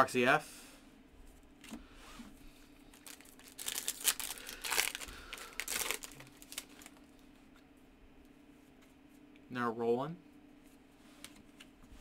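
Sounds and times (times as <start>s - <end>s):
foil wrapper tearing and crinkling: 2.9s - 7.0s.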